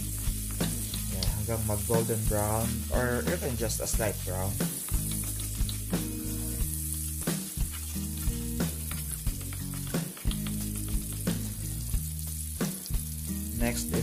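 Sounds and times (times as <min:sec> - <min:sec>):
garlic sizzling in oil: 0:00.0 - 0:14.0
wooden spoon scraping a pan: 0:00.5 - 0:11.7.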